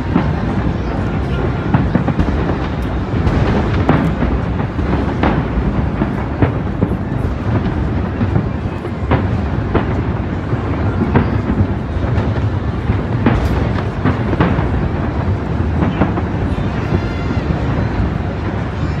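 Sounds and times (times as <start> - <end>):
firework bangs: 0.0 - 19.0.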